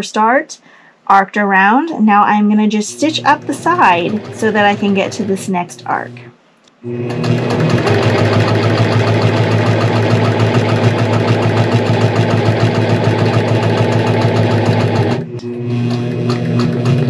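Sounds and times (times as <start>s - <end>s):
needle stitching rhythm: 2.6s - 17.0s
quilting machine motor hum: 2.6s - 17.0s.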